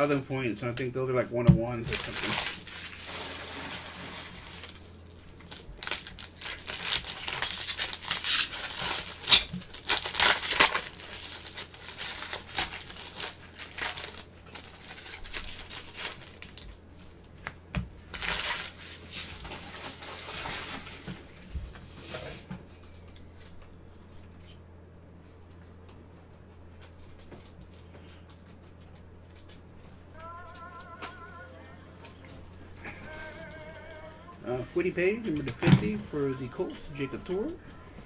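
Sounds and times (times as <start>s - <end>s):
foil wrappers crinkling: 0.0s - 21.5s.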